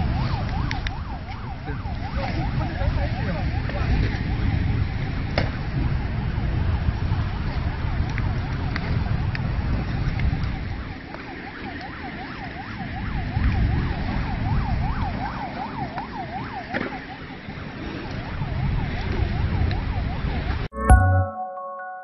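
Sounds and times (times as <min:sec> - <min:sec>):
emergency siren yelping: 0:00.0 - 0:21.1.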